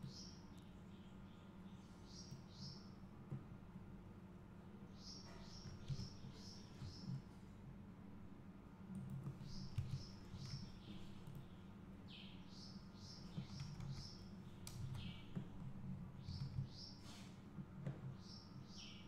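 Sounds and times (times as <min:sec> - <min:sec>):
bird chirping faintly: 0:00.0 - 0:03.0, 0:04.9 - 0:07.3, 0:09.2 - 0:19.0
low steady hum: 0:00.0 - 0:19.0.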